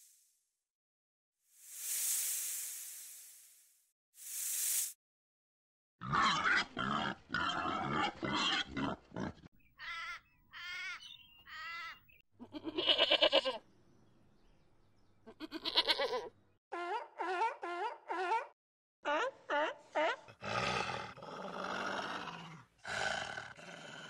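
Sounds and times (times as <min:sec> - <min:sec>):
short hiss: 0:01.6 - 0:05.0
goat bleating: 0:11.5 - 0:13.6, 0:15.3 - 0:16.3.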